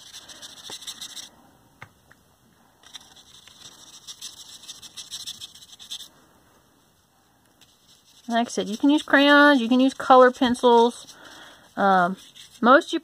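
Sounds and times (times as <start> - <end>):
paintbrush scratching on paper: 0.0 - 1.3, 2.8 - 6.1, 7.6 - 13.0.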